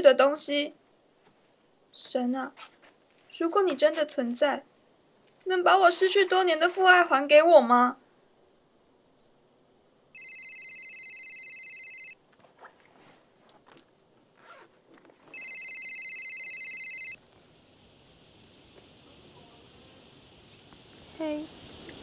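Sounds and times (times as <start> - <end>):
mobile phone ringing: 10.2 - 12.2, 15.3 - 17.2.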